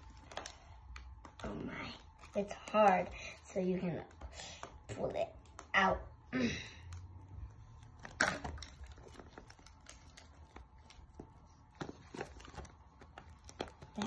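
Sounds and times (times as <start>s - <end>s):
plastic wrapper rustling: 0.0s - 3.0s, 7.0s - 14.0s.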